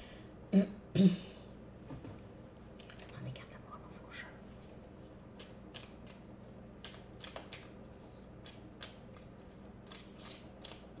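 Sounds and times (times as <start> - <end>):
cards being shuffled: 6.8 - 10.9.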